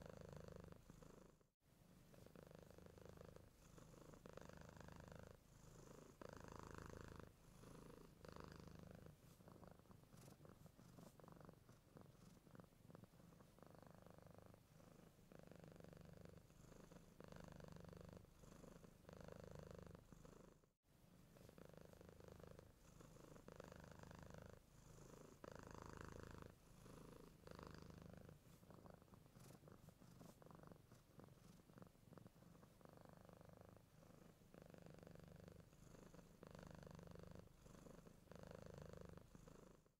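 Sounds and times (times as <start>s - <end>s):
cat purring: 0.0s - 39.9s.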